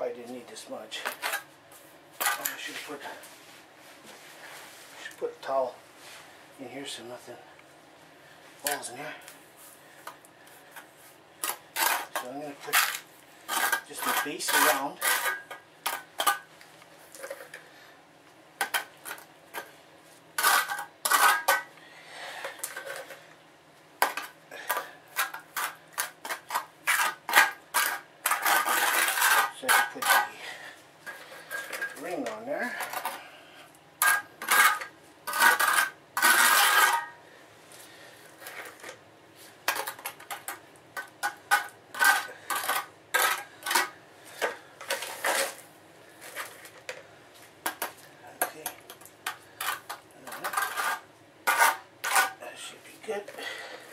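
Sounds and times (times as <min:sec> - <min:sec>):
trowel scraping wet mortar: 0:11.4 - 0:16.3, 0:24.6 - 0:30.5, 0:34.4 - 0:37.2, 0:49.5 - 0:52.4.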